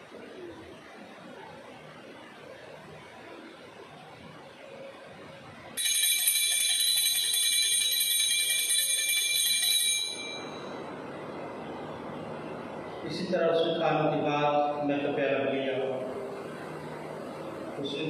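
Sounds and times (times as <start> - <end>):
high-pitched bell ringing: 5.8 - 10.8.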